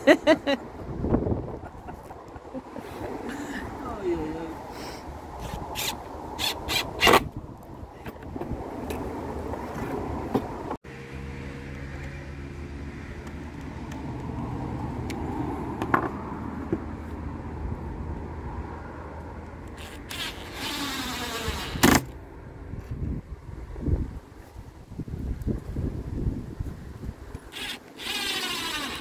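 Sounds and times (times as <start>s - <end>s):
impact driver driving a screw: 27.5s - 29.0s.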